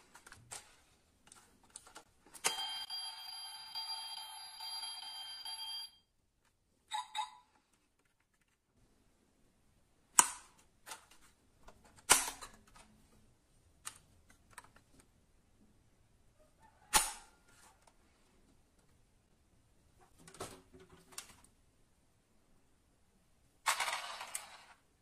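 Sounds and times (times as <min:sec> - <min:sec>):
toy car doors clicking and snapping: 0:12.0 - 0:12.8.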